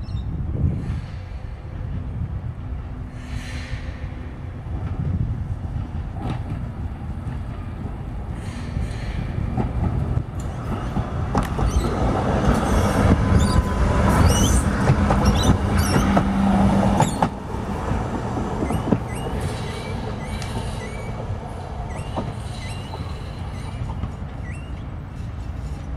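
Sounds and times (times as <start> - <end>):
tram rumbling past: 0.0 - 25.9
wheel squeals: 11.4 - 17.3, 18.6 - 25.7.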